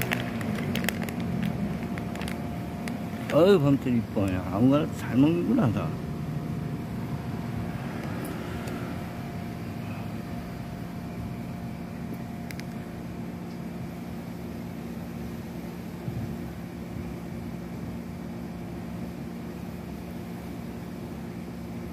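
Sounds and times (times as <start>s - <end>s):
broad background noise: 0.0s - 21.9s
low mechanical hum: 0.0s - 21.9s.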